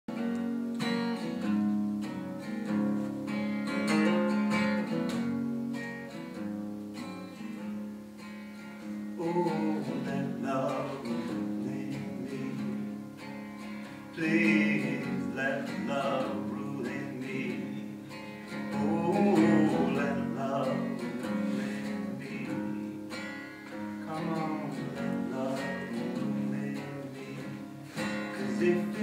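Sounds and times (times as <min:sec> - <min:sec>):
acoustic guitar strumming: 0:00.1 - 0:29.0
man singing softly: 0:08.9 - 0:13.3, 0:13.9 - 0:29.0.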